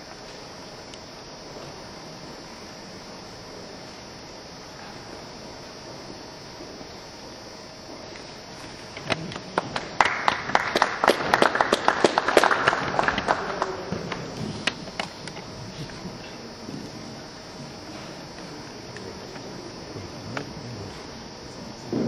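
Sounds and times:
steady low hiss: 0:00.0 - 0:22.0
group hand clapping: 0:09.1 - 0:15.4.

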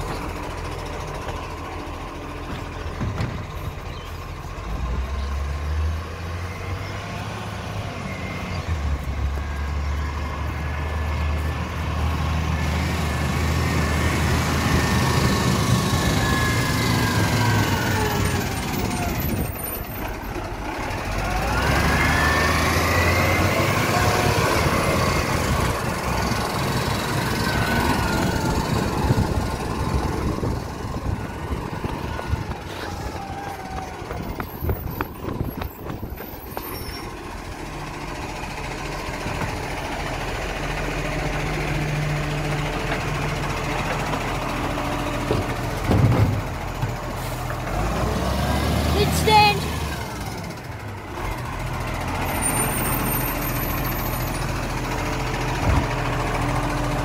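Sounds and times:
garbage truck driving past: 0:00.0 - 0:57.0.

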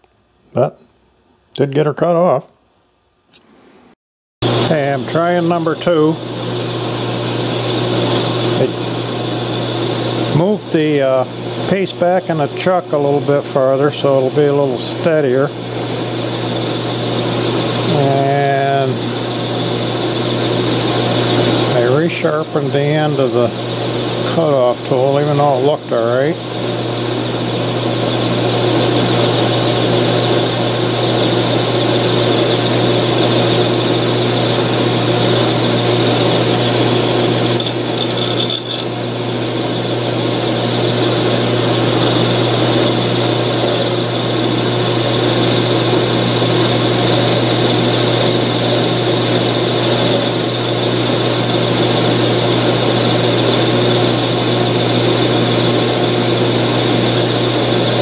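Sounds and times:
metal lathe motor hum: 0:04.4 - 0:58.0
cutoff tool cutting metal: 0:37.4 - 0:39.0.

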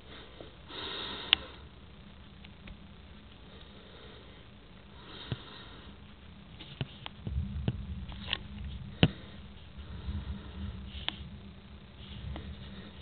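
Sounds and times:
low rumble of thunder: 0:07.2 - 0:13.0.

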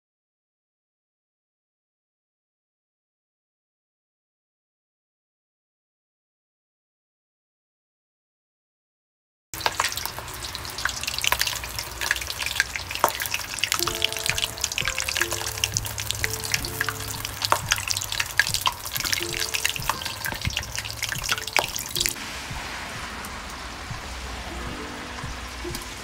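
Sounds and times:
pot boiling and crackling: 0:09.6 - 0:26.0
quiet background melody: 0:11.2 - 0:26.0.

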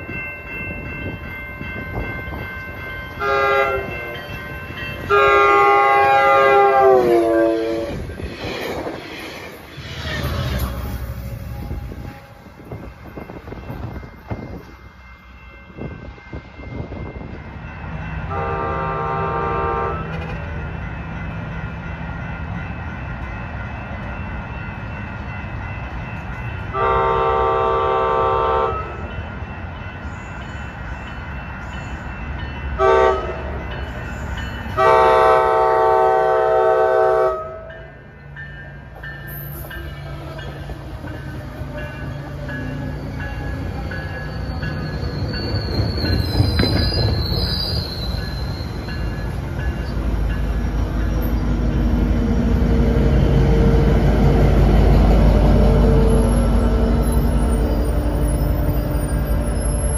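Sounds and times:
train rumble: 0:00.0 - 0:59.9
train horn blasts: 0:03.2 - 0:04.1, 0:05.0 - 0:08.2, 0:18.3 - 0:20.3, 0:26.7 - 0:29.0, 0:32.8 - 0:33.6, 0:34.8 - 0:37.8.

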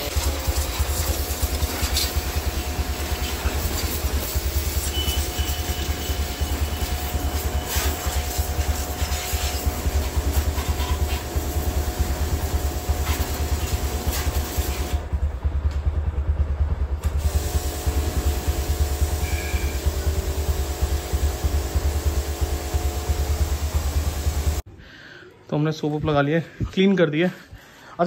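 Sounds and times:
pressure washer water jet hissing: 0:00.0 - 0:15.2, 0:17.0 - 0:24.6
pressure washer motor hum: 0:00.0 - 0:24.6.

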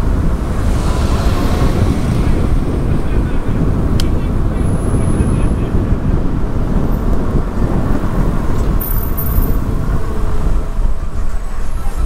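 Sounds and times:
traffic idling and creeping: 0:00.0 - 0:12.0
wind buffeting microphone: 0:00.0 - 0:12.0.

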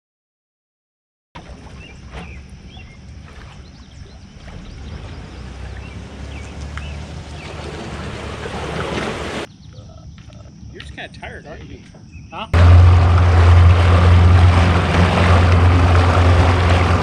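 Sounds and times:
boat motor idling: 0:01.4 - 0:09.5, 0:12.6 - 0:17.0
birds chirping: 0:01.5 - 0:12.7.

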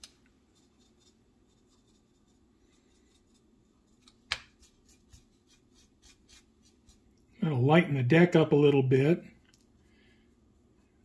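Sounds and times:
dry paintbrush scratching plastic: 0:00.5 - 0:07.1.

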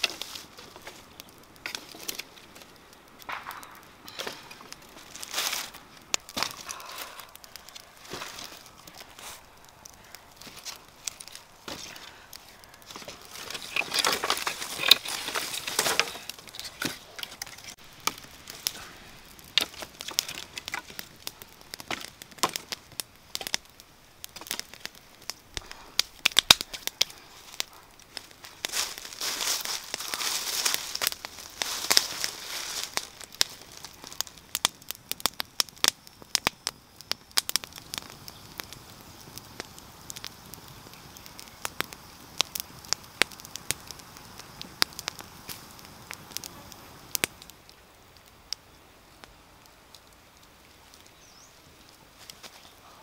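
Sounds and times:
sticks rustling and knocking: 0:00.0 - 0:23.6
wood fire crackling and snapping: 0:00.0 - 0:53.0.

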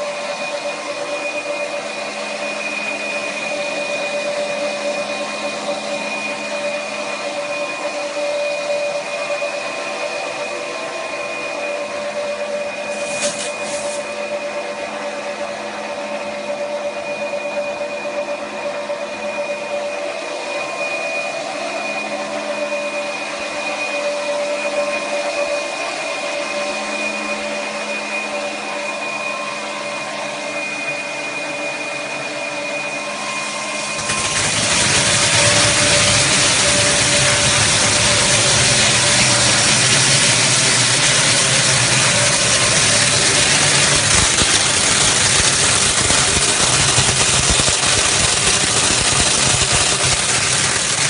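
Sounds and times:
machine whirring hum: 0:00.0 - 0:51.0
brief hiss: 0:12.9 - 0:14.1
loud rushing noise: 0:29.2 - 0:51.0.

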